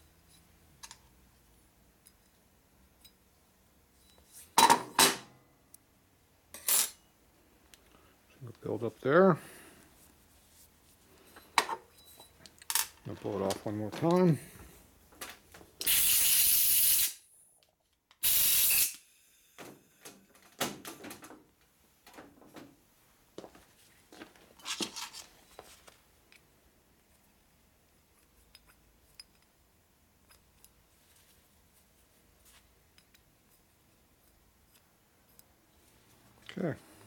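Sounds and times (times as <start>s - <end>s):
compressed air blasts: 15.8s - 17.2s, 18.2s - 19.0s.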